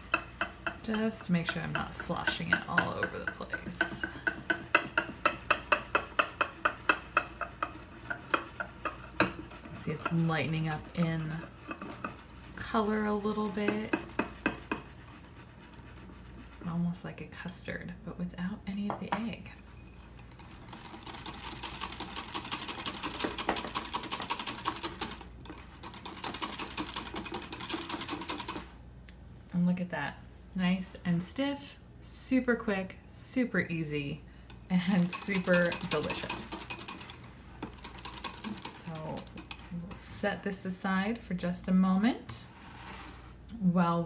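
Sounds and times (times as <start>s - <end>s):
whisk clicking against glass bowl: 0.0s - 16.6s, 19.6s - 28.7s, 34.5s - 40.0s.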